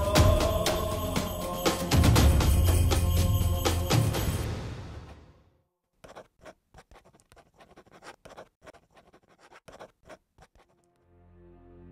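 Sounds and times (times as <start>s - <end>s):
music: 0.0s - 5.1s, 10.9s - 11.9s
quill pen scratching paper: 6.0s - 10.9s.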